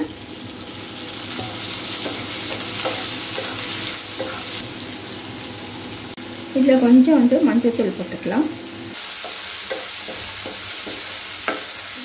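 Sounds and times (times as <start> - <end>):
vegetables sizzling in hot oil: 0.0 - 12.0
spatula tapping and scraping pan: 1.4 - 4.5, 9.2 - 11.7.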